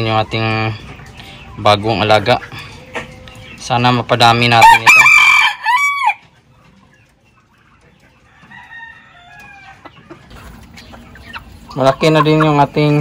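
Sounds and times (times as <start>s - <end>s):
chickens clucking softly: 0.0s - 5.1s, 5.8s - 13.0s
rooster crowing: 4.6s - 6.2s, 8.3s - 9.8s.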